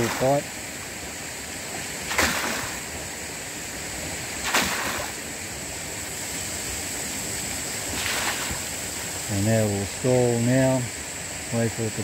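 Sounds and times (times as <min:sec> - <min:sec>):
running water: 0:00.0 - 0:12.0
brief rush of water: 0:07.9 - 0:08.9.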